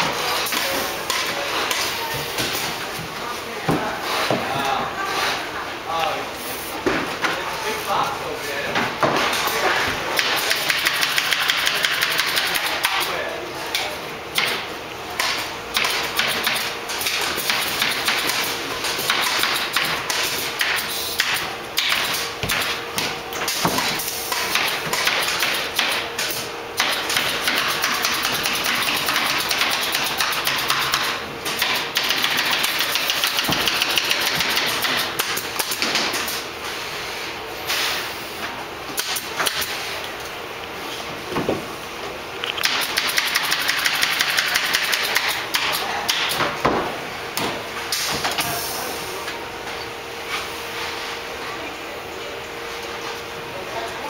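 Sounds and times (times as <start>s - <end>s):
rapid mechanical clicks and taps: 24.3s - 35.8s, 42.5s - 46.4s.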